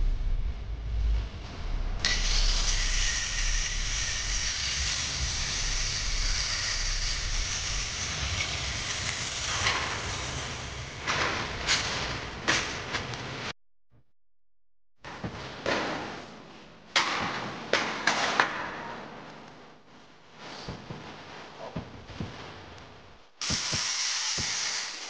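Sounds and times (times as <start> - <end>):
angle grinder cutting sheet steel: 2.0 - 10.3.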